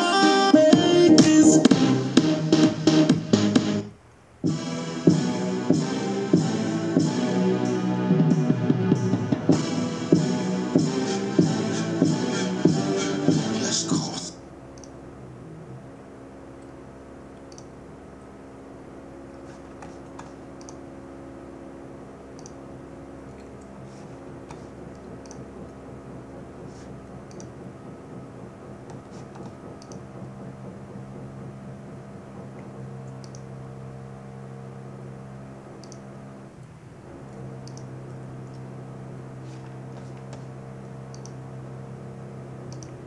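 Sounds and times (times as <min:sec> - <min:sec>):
steady low hum: 0:00.0 - 0:43.0
computer mouse clicks: 0:14.8 - 0:15.0, 0:17.4 - 0:17.7, 0:19.8 - 0:20.8, 0:22.4 - 0:22.6, 0:24.5 - 0:25.5, 0:27.3 - 0:27.5, 0:28.9 - 0:30.0, 0:33.1 - 0:33.4, 0:35.8 - 0:36.0, 0:37.6 - 0:37.9, 0:41.1 - 0:41.4, 0:42.7 - 0:43.0.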